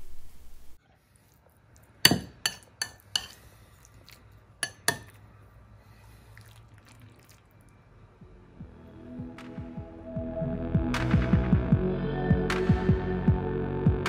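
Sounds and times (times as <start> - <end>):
metal spoon clinking against bowl: 2.1 - 3.4, 4.6 - 5.2.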